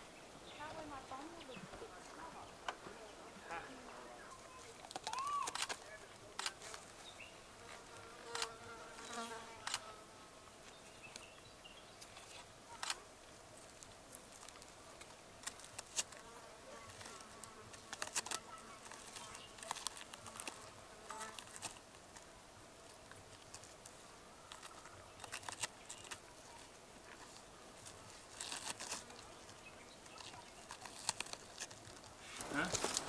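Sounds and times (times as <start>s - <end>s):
insect buzzing faintly: 0.0s - 33.0s
animal scratching in leaf litter: 23.6s - 33.0s.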